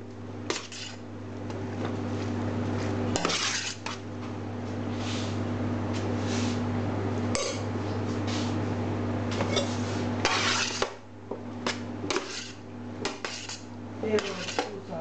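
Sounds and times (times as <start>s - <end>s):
metal spatula scraping a steel tray: 0.5s - 1.0s, 3.2s - 4.0s, 9.6s - 10.9s, 12.1s - 14.8s.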